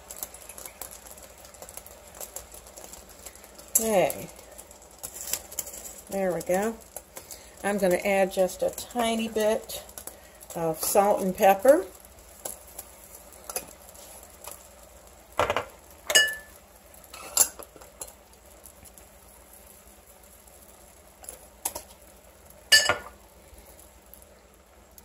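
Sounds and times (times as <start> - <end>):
kitchenware clinking against pan: 15.4 - 16.5, 22.7 - 23.1.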